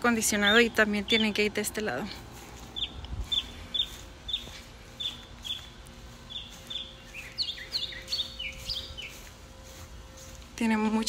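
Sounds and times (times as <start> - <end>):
faint steady hum: 0.0 - 11.0
songbird chirping: 0.0 - 11.0.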